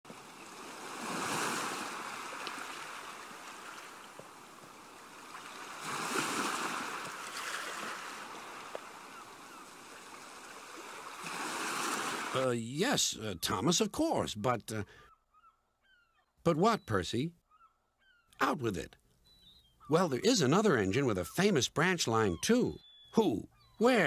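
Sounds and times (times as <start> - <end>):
water splashing against a boat: 0.1 - 12.4.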